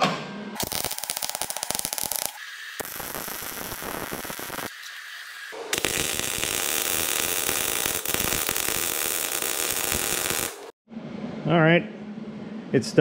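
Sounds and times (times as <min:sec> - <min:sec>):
welding arc crackling: 0:00.6 - 0:10.8.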